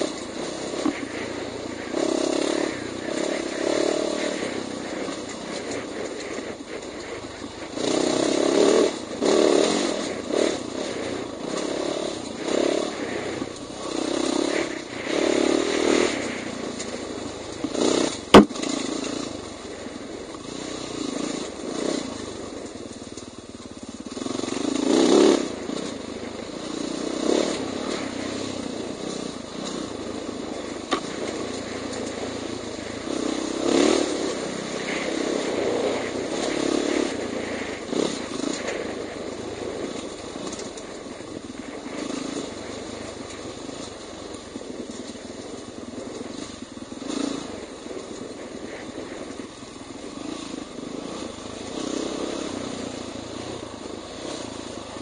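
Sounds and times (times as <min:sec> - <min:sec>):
dirt bike engine revving: 0:00.0 - 0:55.0
sharp knock: 0:18.3 - 0:18.6.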